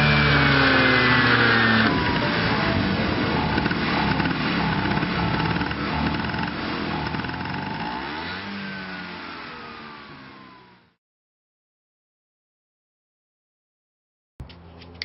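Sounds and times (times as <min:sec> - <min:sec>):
scooter engine revving: 0:00.0 - 0:11.0.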